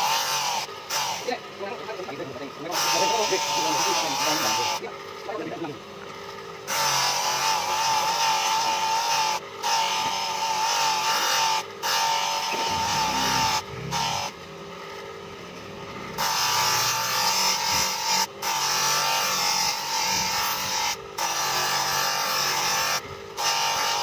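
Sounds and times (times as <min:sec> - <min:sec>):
knife grinding on abrasive wheel: 0:00.0 - 0:05.6, 0:06.5 - 0:24.0
spinning wheel hum: 0:12.5 - 0:16.2.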